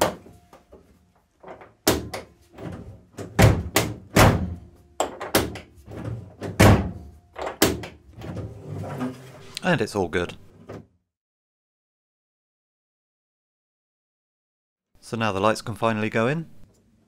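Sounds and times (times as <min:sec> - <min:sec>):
latch knocks: 0:01.4 - 0:08.4.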